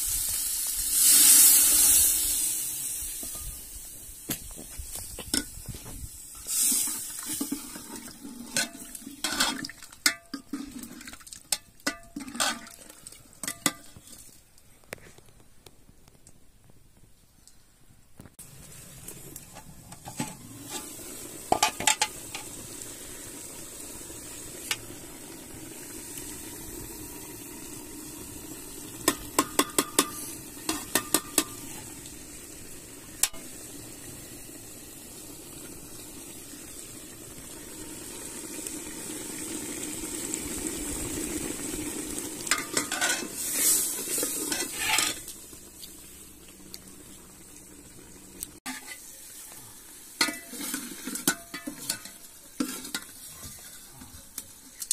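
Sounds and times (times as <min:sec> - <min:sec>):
stew bubbling: 0:05.3 - 0:14.3, 0:18.4 - 0:54.9
pot lid clatter: 0:42.5 - 0:43.4.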